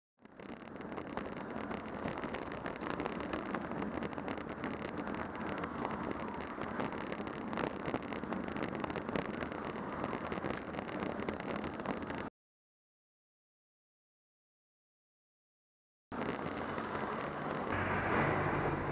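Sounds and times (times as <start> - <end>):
road and traffic noise: 0.2 - 12.3, 16.1 - 18.9.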